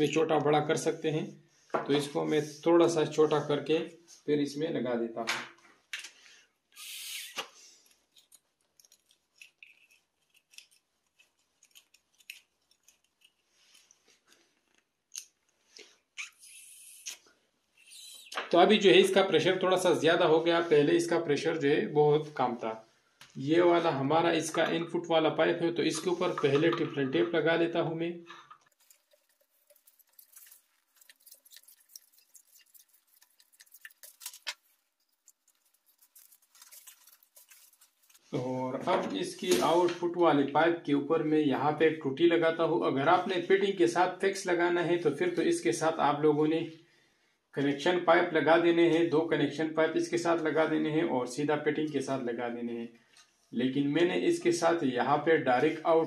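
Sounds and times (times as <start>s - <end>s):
small metallic clicks and scrapes: 6.8s - 15.6s, 28.3s - 38.3s.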